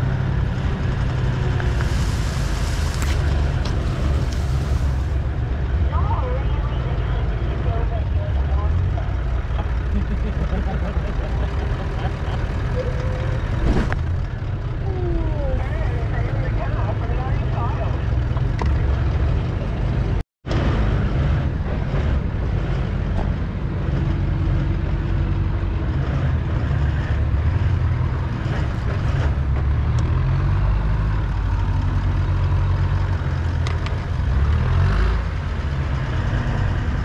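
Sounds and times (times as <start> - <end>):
vehicle engine rumbling: 0.0 - 37.0.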